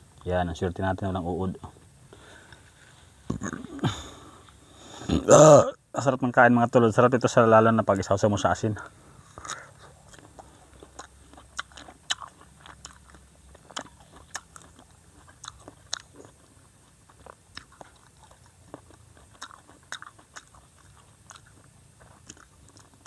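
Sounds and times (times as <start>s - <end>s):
person chewing crisp fruit: 8.8s - 23.0s.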